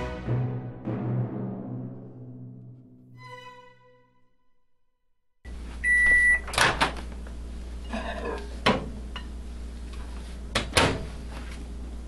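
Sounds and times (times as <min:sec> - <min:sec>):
microwave oven beep: 0:05.8 - 0:06.5.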